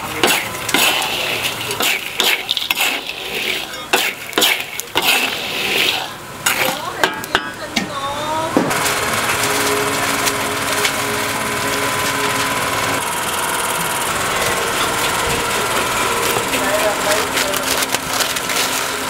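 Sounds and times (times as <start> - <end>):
engine-like running noise: 0.0 - 19.0
metal spatula scraping salt in wok: 0.2 - 6.9
low hum: 7.9 - 19.0.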